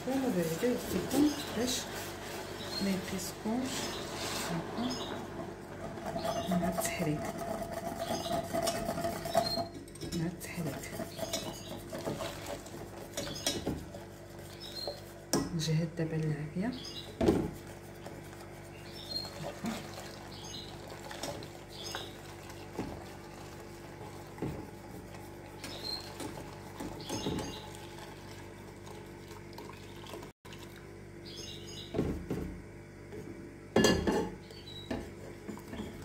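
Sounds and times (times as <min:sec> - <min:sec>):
whisk clinking against pan: 0:06.1 - 0:15.1
milk pouring and splashing: 0:19.2 - 0:31.0.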